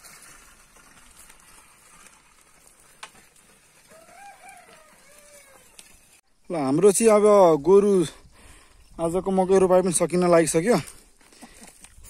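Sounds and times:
plough drawn through stony soil: 0:00.0 - 0:06.2.

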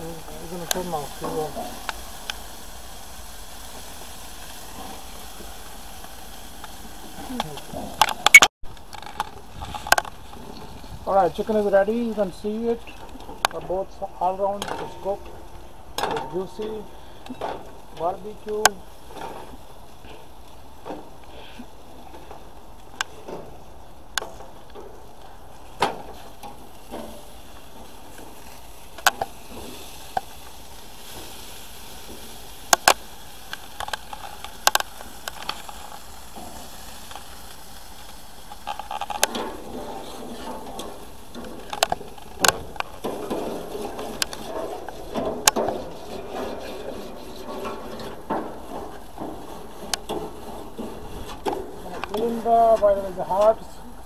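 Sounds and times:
utensil clacking on grill grates: 0:00.0 - 0:53.7
faint hiss: 0:00.0 - 0:54.0.

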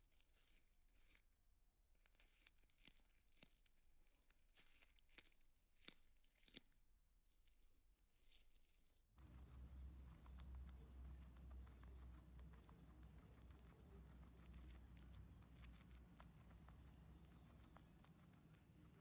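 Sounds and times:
guinea pig chewing greens: 0:00.0 - 0:19.0
low steady hum: 0:09.2 - 0:19.0.

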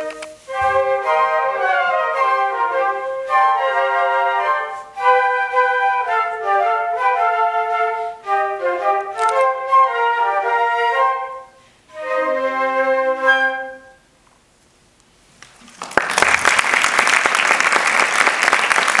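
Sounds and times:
flute ensemble playing: 0:00.0 - 0:14.1
audience applauding: 0:15.4 - 0:19.0.

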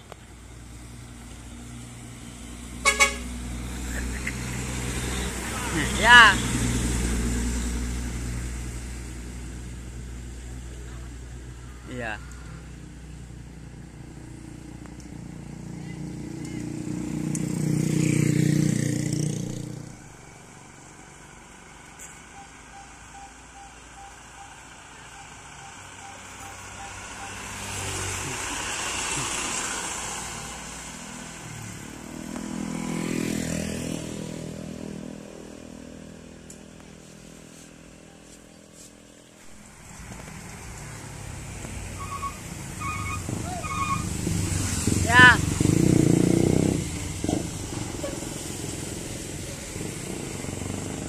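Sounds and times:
motorcycles passing: 0:00.2 - 0:51.0
truck engine passing: 0:00.4 - 0:36.4, 0:39.5 - 0:51.0
car horn beeps: 0:02.8 - 0:03.3, 0:25.2 - 0:27.6
tyre hiss on wet road: 0:27.8 - 0:31.4.

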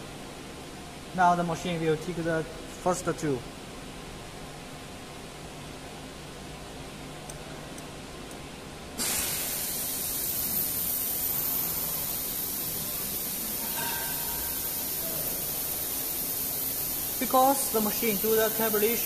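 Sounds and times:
compressed air hissing: 0:09.0 - 0:13.8, 0:14.4 - 0:19.0.

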